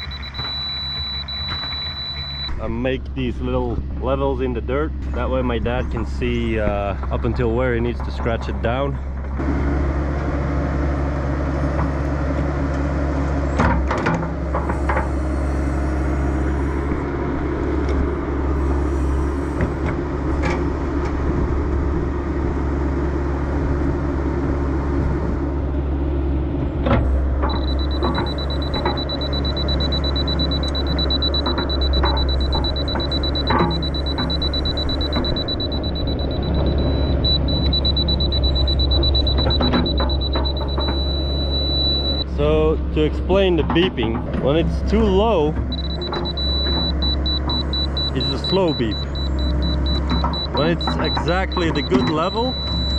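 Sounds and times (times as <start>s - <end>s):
high-pitched beep: 0.0s - 2.6s, 27.4s - 42.3s, 45.7s - 52.9s
excavator engine running: 0.0s - 52.9s.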